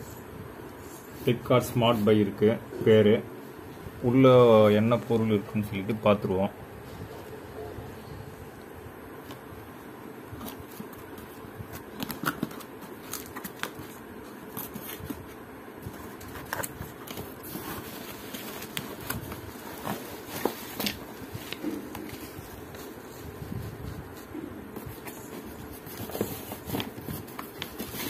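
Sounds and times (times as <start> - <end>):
faint steady hum: 0.0 - 28.0
bubble wrap rustling: 9.1 - 28.0
cardboard crackling and scraping: 9.2 - 28.0.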